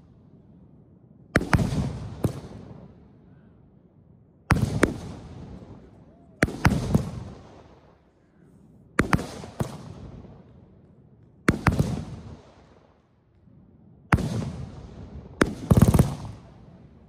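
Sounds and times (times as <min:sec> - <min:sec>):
fireworks bangs with echo: 0:01.3 - 0:03.2, 0:04.5 - 0:08.3, 0:08.9 - 0:13.2, 0:14.1 - 0:17.0.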